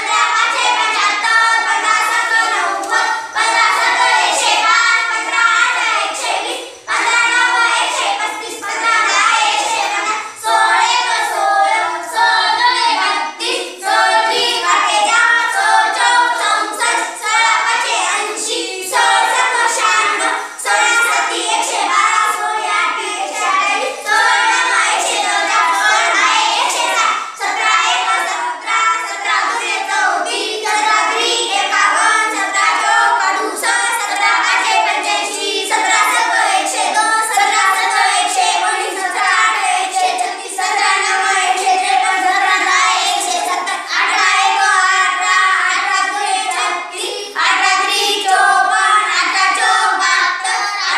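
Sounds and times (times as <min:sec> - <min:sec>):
children chanting in unison: 0:00.0 - 0:50.9.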